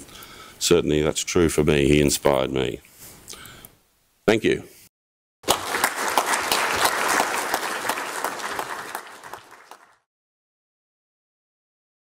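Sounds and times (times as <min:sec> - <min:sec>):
audience applauding: 0:05.4 - 0:10.1.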